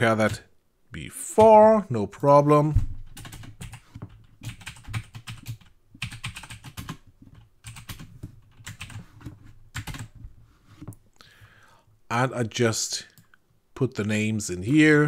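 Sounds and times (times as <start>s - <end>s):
typing on computer keyboard: 3.1s - 9.1s, 9.7s - 10.2s.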